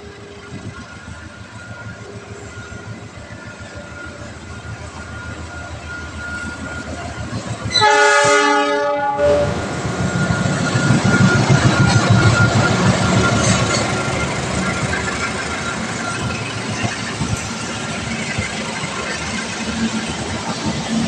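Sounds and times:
locomotive engine: 0.0 - 21.0
train wheels on rails: 0.0 - 21.0
train horn blast: 7.7 - 9.7.

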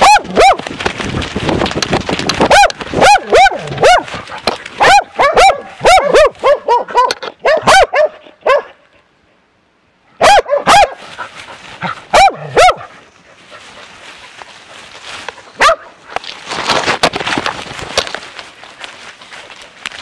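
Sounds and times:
dog barking: 0.0 - 0.6, 2.5 - 4.2, 4.8 - 8.8, 10.2 - 11.0, 12.1 - 12.9, 15.6 - 15.9.

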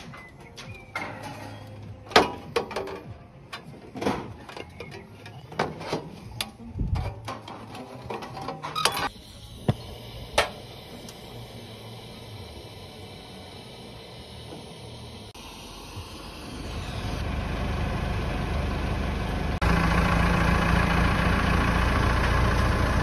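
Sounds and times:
gas torch hissing: 9.0 - 17.2.

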